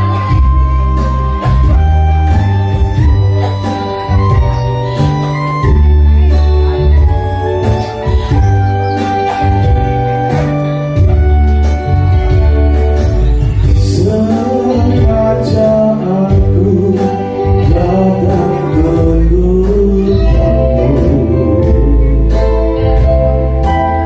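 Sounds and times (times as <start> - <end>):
electric guitar: 0.0 - 24.0
heavy bass line: 0.0 - 24.0
keyboard: 0.0 - 24.0
man singing into a microphone: 13.6 - 22.8.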